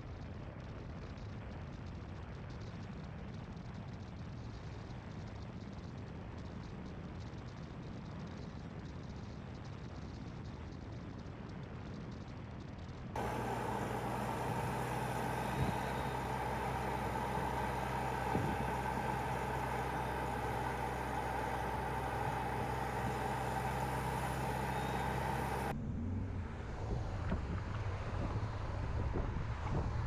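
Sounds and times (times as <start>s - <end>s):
car engine hum: 13.2s - 30.0s
road noise: 13.2s - 30.0s.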